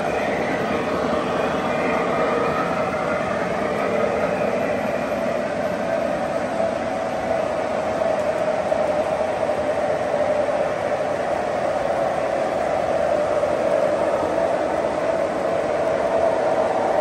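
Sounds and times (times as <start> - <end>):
model train wheels rumbling: 0.0 - 13.4.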